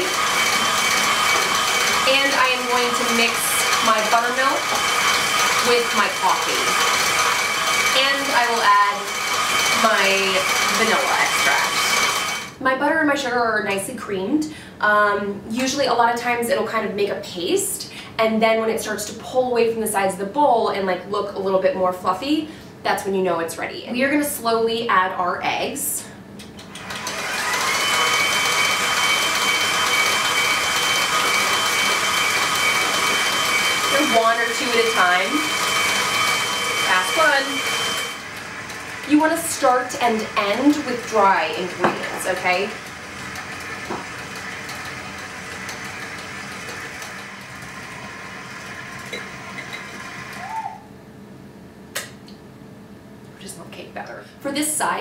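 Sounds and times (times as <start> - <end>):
stand mixer motor whine: 0.0 - 12.6, 26.7 - 50.6.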